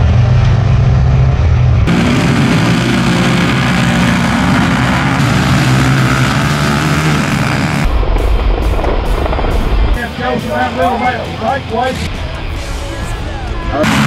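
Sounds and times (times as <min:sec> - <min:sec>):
quad bike engines revving: 0:00.0 - 0:07.9, 0:13.5 - 0:14.0.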